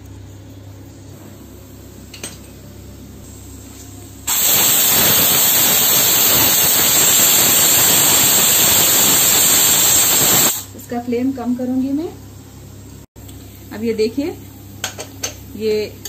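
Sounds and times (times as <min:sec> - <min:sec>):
pressure cooker steam hissing: 0:04.3 - 0:10.8.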